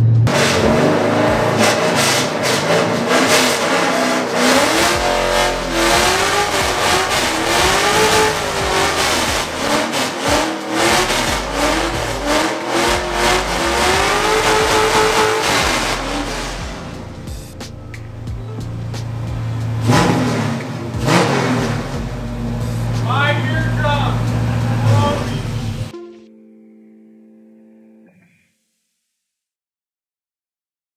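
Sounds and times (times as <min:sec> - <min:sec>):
car engine revving: 0:00.0 - 0:26.0
tyres squealing on concrete: 0:01.5 - 0:17.7.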